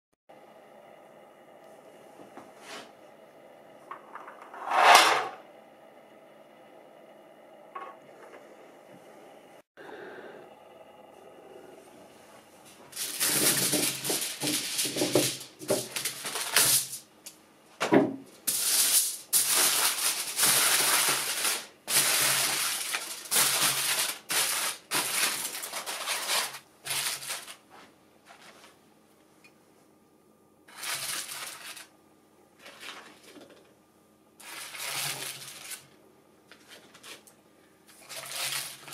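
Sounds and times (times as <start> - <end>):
aluminium foil crinkling: 12.9 - 17.1, 18.4 - 28.8, 30.7 - 31.9, 32.6 - 33.7, 34.4 - 38.9.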